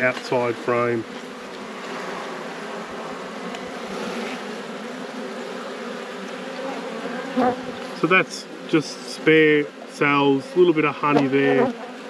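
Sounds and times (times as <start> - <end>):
honeybees buzzing: 0.0 - 12.0.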